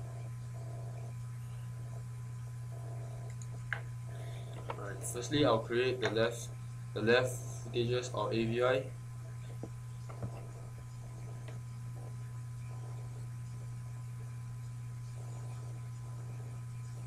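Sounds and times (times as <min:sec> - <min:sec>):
low electrical hum: 0:00.0 - 0:17.0.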